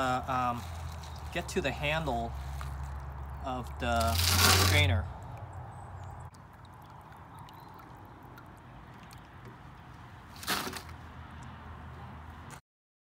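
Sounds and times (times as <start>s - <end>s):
water sloshing and trickling: 0.0s - 11.6s
water splash: 3.0s - 5.0s.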